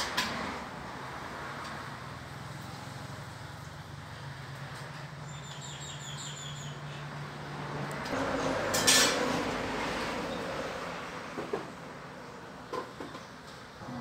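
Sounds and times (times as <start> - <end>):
bird chirping: 5.2 - 7.1.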